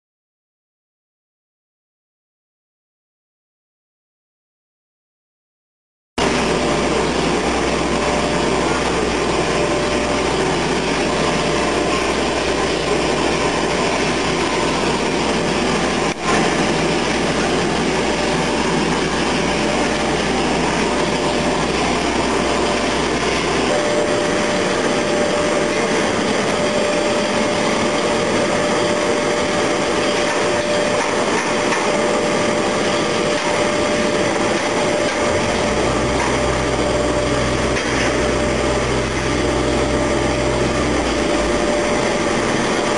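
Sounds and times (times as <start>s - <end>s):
heavy machinery droning: 6.2s - 42.9s
constant whining tone: 6.6s - 42.9s
deep hum: 31.9s - 42.9s.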